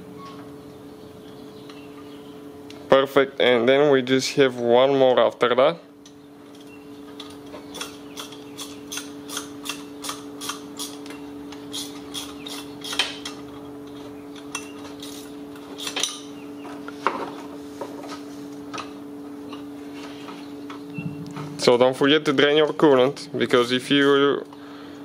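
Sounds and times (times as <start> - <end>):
steady hum: 0.0 - 25.0
hand tools clicking on metal: 6.5 - 16.3.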